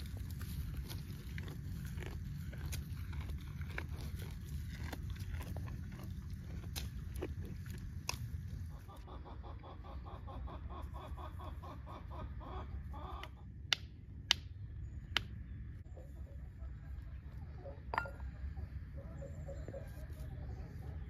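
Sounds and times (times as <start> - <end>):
steady low rumble: 0.0 - 8.9
sharp clinks: 17.9 - 18.3.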